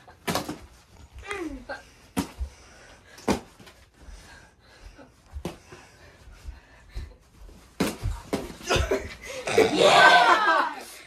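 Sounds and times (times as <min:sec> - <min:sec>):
breathing: 0:01.8 - 0:07.3.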